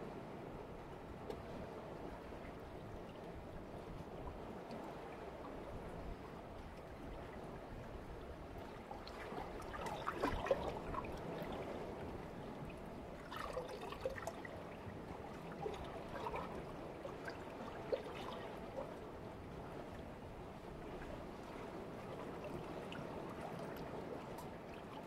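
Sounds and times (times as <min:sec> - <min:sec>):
small water splashes: 0:08.4 - 0:19.1
sea water lapping on rocks: 0:09.0 - 0:12.4.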